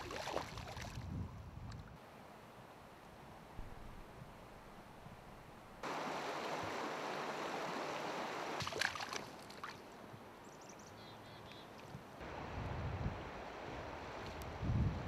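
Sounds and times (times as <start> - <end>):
water splashes: 0.0 - 1.1, 5.8 - 10.0
river water rushing over rocks: 5.8 - 9.3.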